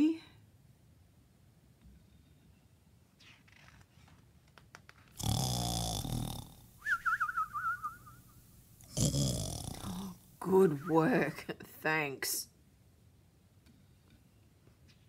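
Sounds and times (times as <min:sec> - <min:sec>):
cartoon snore with whistle: 0:05.2 - 0:08.2.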